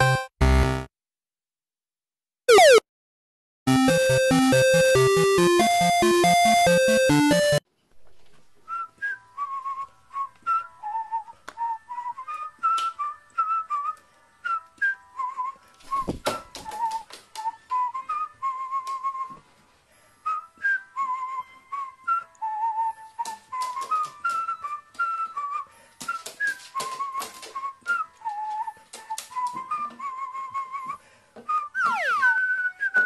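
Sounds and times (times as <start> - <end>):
short wavering whistled notes: 31.5 - 33.0.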